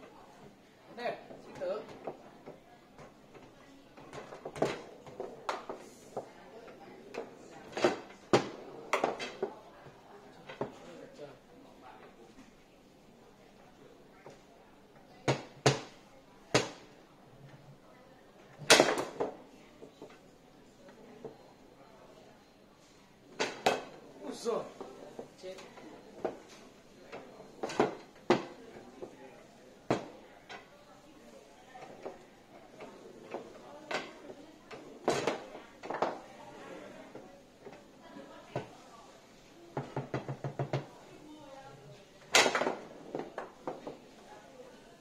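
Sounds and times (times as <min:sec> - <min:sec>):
foosball ball and rods clacking: 0:01.9 - 0:06.3, 0:07.1 - 0:09.5, 0:15.2 - 0:16.9, 0:18.5 - 0:19.4, 0:23.3 - 0:24.0, 0:24.7 - 0:29.2, 0:29.9 - 0:30.7, 0:32.8 - 0:36.3, 0:39.8 - 0:41.0, 0:42.2 - 0:44.1
foosball ball knocking: 0:07.7 - 0:09.5, 0:23.4 - 0:24.0, 0:27.2 - 0:28.6, 0:39.8 - 0:40.9, 0:42.3 - 0:44.0.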